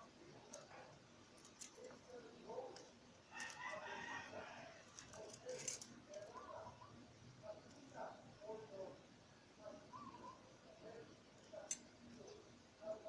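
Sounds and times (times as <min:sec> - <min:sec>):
pliers clicking on wire: 0:01.4 - 0:02.1, 0:02.7 - 0:03.7, 0:04.8 - 0:06.4, 0:11.4 - 0:12.0
rooster crowing: 0:03.3 - 0:04.8.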